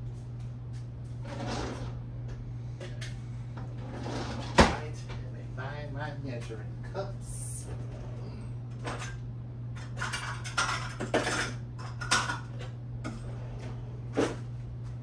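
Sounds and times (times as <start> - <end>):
steady low hum: 0.0 - 15.0
dishes and utensils clattering: 9.8 - 13.2.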